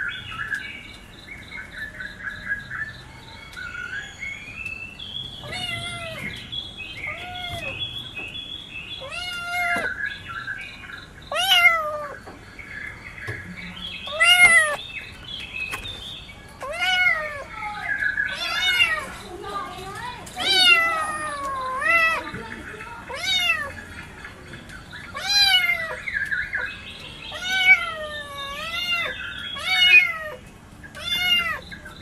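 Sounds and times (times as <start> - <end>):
kittens meowing: 5.4 - 8.0, 9.0 - 10.0, 11.3 - 12.3, 14.0 - 14.8, 16.6 - 23.8, 25.1 - 26.1, 27.3 - 32.0.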